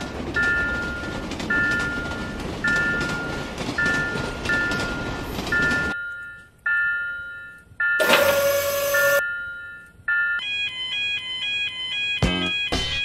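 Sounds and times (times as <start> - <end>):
crossing alarm ringing: 0.4 - 13.0.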